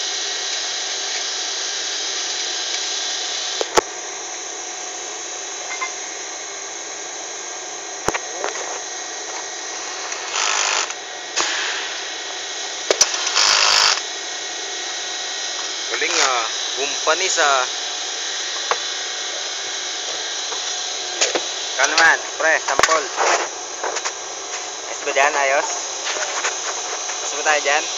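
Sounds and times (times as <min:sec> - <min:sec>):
steady machine hum: 0:00.0 - 0:27.9
power drill driving bolts: 0:10.0 - 0:12.3, 0:12.9 - 0:14.1, 0:20.1 - 0:24.0.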